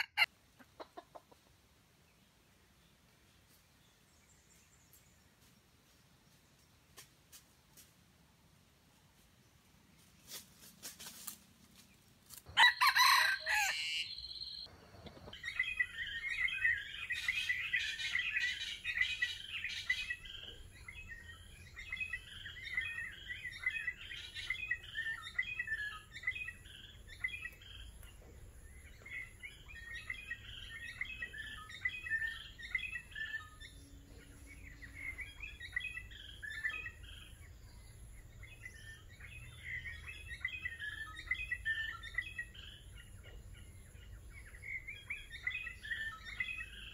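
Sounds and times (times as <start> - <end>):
small birds chirping and twittering: 0.0 - 46.9
rooster crowing: 12.5 - 14.2.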